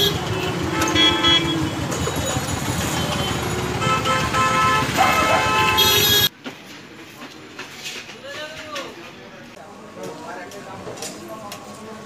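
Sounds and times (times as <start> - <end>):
vehicle horns tooting: 0.0 - 6.3
vehicle engines: 0.0 - 8.2.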